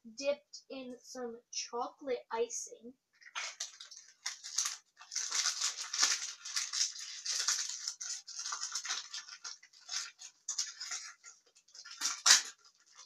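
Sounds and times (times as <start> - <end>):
packet tearing open: 3.2 - 13.0
plastic packaging crinkling: 3.2 - 13.0.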